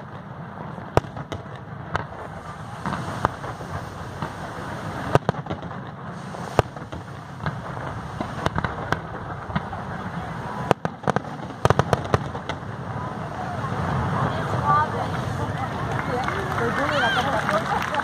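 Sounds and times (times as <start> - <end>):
firework shells bursting: 0.0 - 14.3
firework crackle: 0.0 - 18.0.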